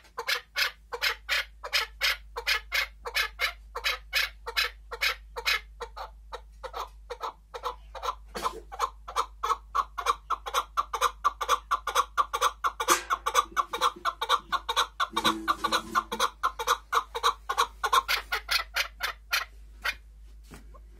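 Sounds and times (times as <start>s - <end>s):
partridge calling: 9.2s - 20.0s.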